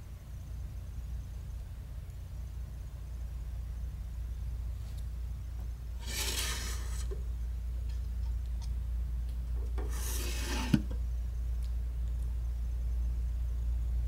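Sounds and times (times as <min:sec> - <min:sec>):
steady low hum: 0:00.0 - 0:14.0
glass door scraping along track: 0:06.0 - 0:07.2, 0:09.8 - 0:11.0.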